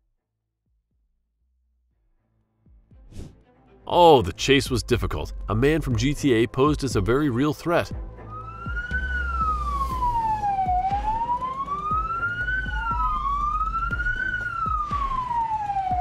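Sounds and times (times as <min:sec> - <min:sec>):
police sirens wailing: 0:08.2 - 0:16.0.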